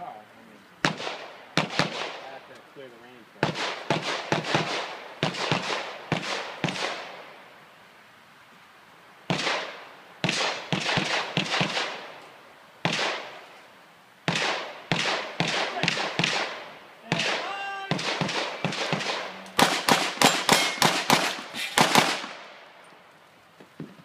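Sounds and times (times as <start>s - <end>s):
pistol shots with echo: 0.8s - 2.4s, 3.4s - 7.2s, 9.3s - 12.1s, 12.8s - 13.3s, 14.3s - 22.5s.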